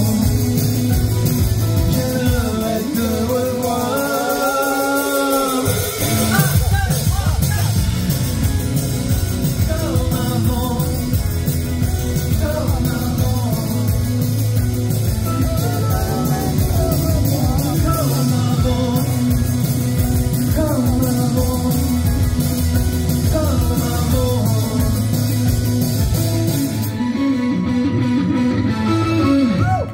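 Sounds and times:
man singing into microphone: 0.0s - 7.5s, 9.5s - 11.2s, 12.2s - 14.4s, 15.2s - 19.7s, 20.3s - 25.4s
electric guitar: 0.0s - 29.9s
rock band playing: 0.0s - 29.9s.

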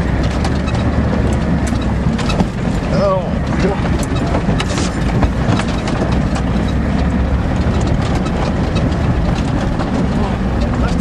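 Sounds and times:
rattles and knocks: 0.0s - 11.0s
truck engine and road rumble: 0.0s - 11.0s.

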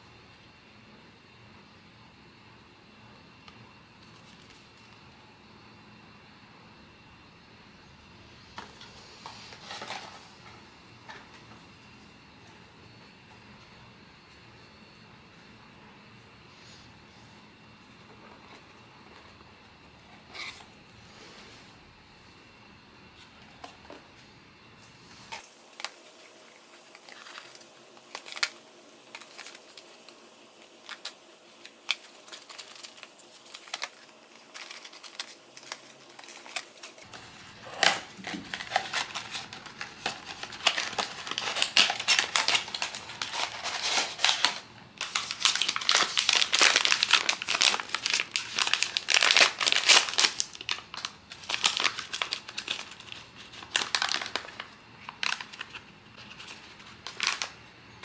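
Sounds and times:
packaging clicks and rustles: 25.3s - 57.6s
wrapping crinkling and tearing: 25.3s - 57.6s.

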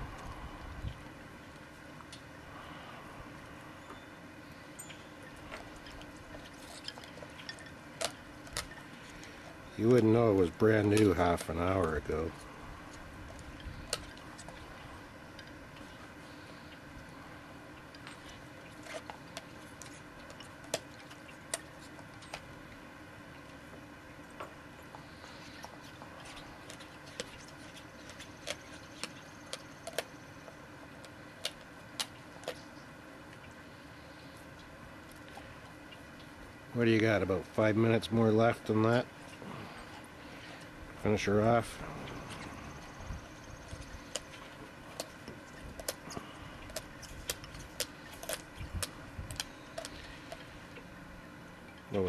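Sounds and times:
dog chewing toy: 39.2s - 50.6s.

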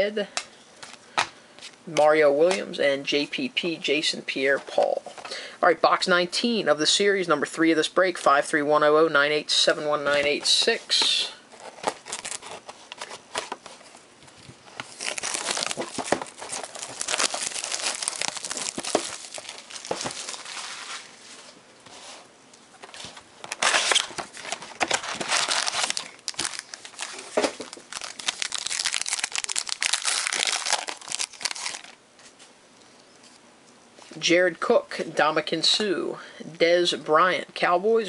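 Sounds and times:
plastic wrap and foil crinkling: 11.5s - 21.6s, 22.8s - 32.0s.

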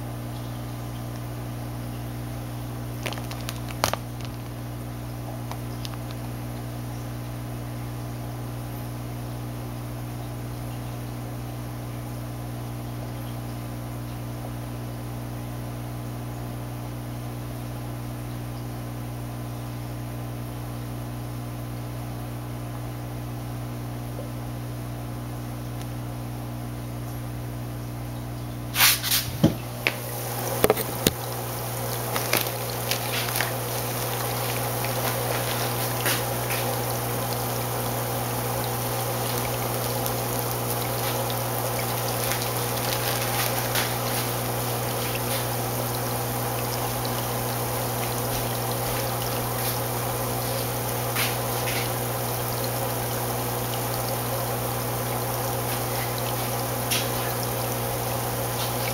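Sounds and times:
water pump hum: 0.0s - 58.9s
water trickling and splashing: 3.0s - 6.7s, 28.8s - 58.9s.

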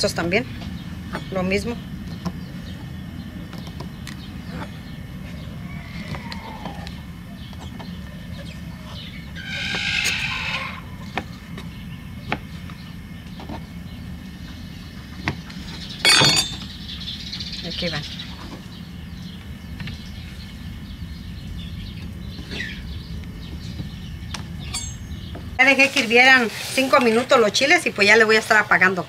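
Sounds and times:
drawn-out call: 5.2s - 7.4s, 9.3s - 11.0s.

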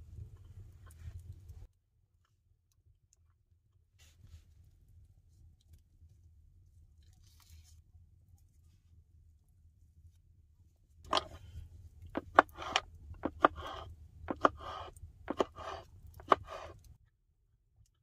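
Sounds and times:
knife slicing on wooden board: 12.2s - 16.8s.

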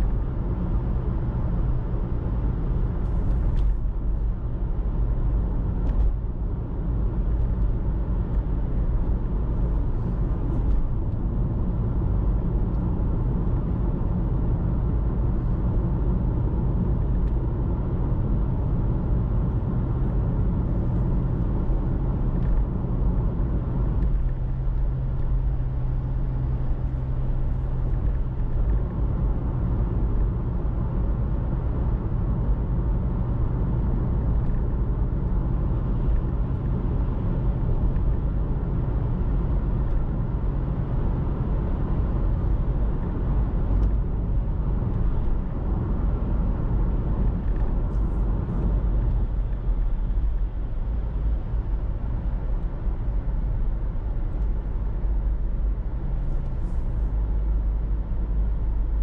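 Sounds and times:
car engine and road noise: 0.0s - 59.0s.

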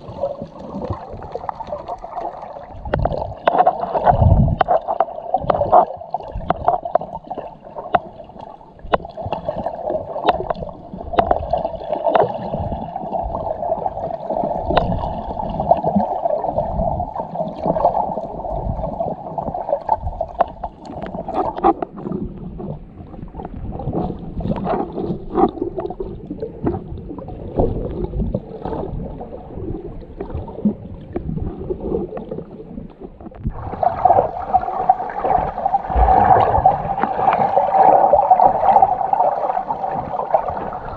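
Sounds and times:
underwater rushing water: 0.0s - 40.9s
sharp underwater clicks and knocks: 2.8s - 12.6s, 14.6s - 15.3s, 19.8s - 27.0s.

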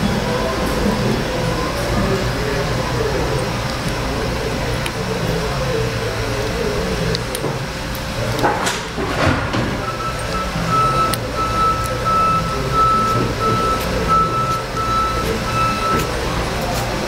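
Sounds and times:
shop machinery drone: 0.0s - 17.0s
vehicle reversing beeper: 9.8s - 16.2s.

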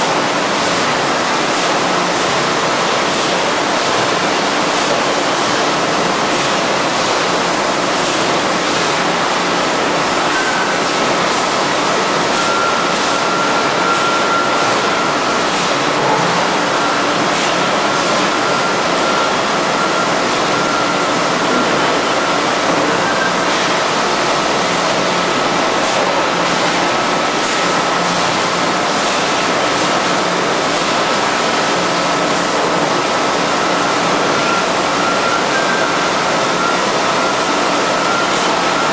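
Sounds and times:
faint high machine whine: 7.3s - 24.2s.

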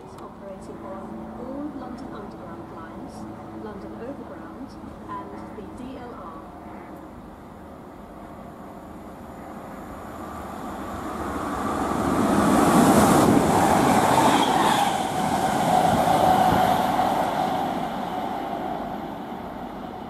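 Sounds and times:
electric train passing: 0.0s - 20.0s
train whine: 0.0s - 20.0s.

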